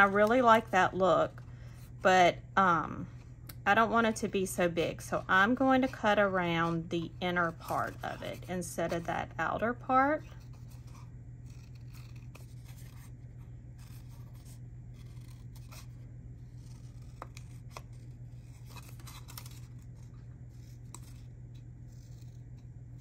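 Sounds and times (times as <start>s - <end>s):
steady low hum: 0.0s - 23.0s
scissors snipping paper: 10.4s - 13.1s, 13.8s - 23.0s.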